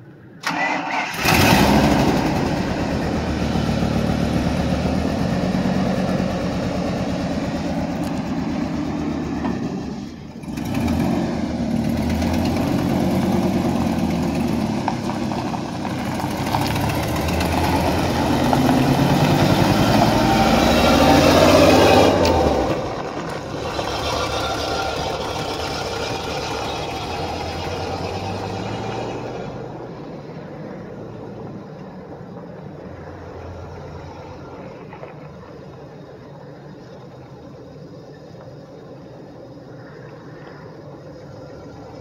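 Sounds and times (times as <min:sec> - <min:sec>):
truck engine idling: 0:00.4 - 0:20.1.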